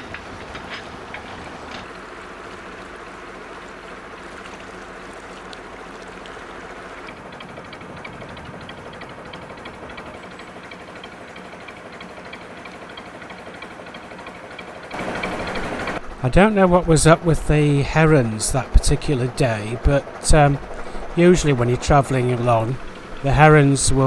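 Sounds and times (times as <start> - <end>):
water washing along hull: 0.0 - 10.1, 14.9 - 24.0
boat diesel engine running: 0.0 - 24.0
fast mechanical ticking: 6.6 - 24.0.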